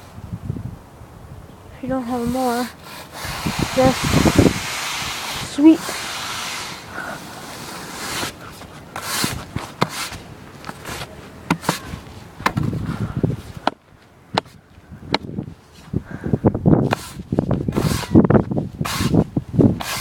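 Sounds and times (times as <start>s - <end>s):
broom bristles swishing on pavement: 1.9s - 13.7s, 16.8s - 20.0s
sharp taps and knocks: 12.4s - 12.8s, 13.6s - 15.3s.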